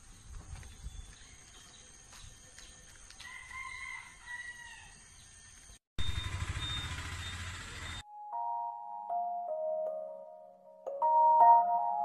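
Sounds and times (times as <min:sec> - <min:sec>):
faint outdoor background noise: 0:00.0 - 0:08.0
rooster crowing: 0:03.2 - 0:05.1.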